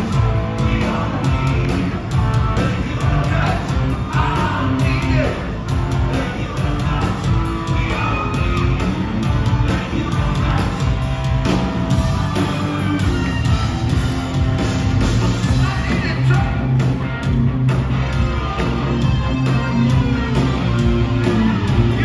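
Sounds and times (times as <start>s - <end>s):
drum beat: 0.0s - 22.0s
electric guitar: 0.0s - 22.0s.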